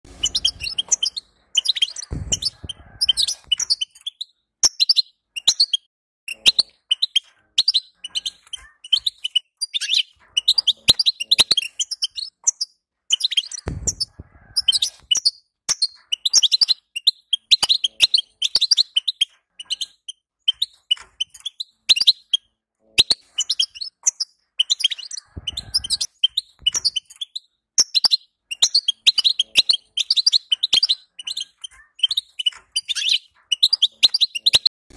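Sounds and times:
goldfinch twittering: 0.1 - 12.4
low thud: 2.1 - 3.5, 13.7 - 14.4.

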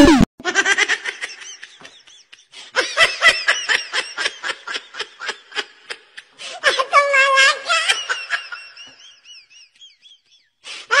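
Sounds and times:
person laughing high-pitched: 0.0 - 3.4.

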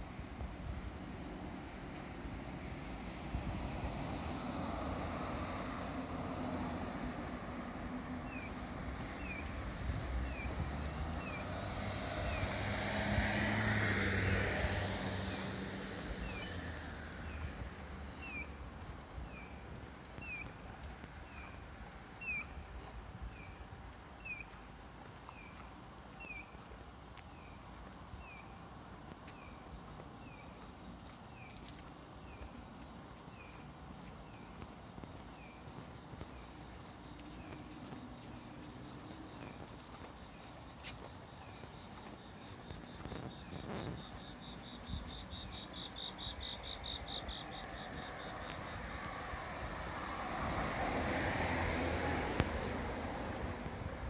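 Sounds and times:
cricket trilling: 10.2 - 54.0.

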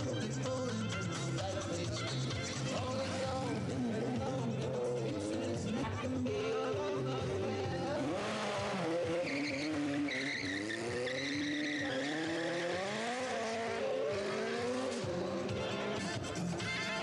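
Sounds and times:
motorcycle engine revving: 1.4 - 17.0
tyre squeal: 8.8 - 13.3.

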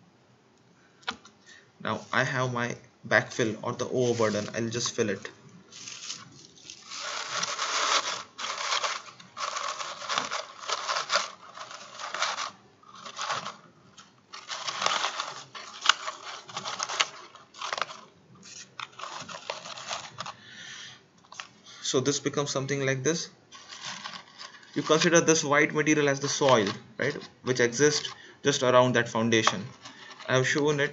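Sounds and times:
paper rustling and crinkling: 3.8 - 20.4, 23.5 - 28.2, 29.4 - 30.9.

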